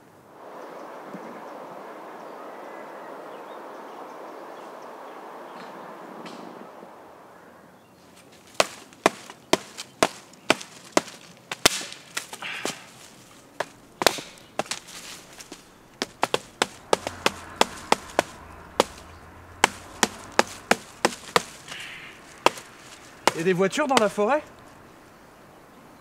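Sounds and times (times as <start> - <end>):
wood being chopped: 8.6 - 12.8, 13.6 - 24.7.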